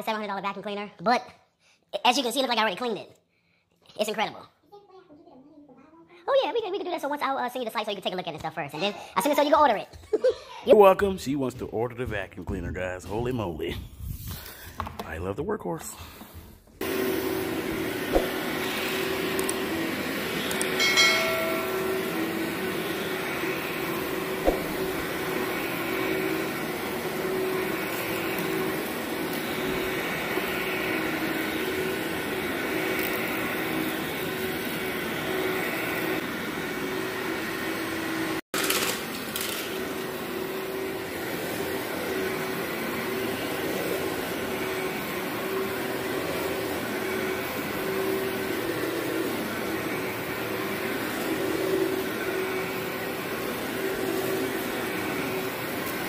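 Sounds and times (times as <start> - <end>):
vacuum cleaner running on carpet: 16.8 - 56.0.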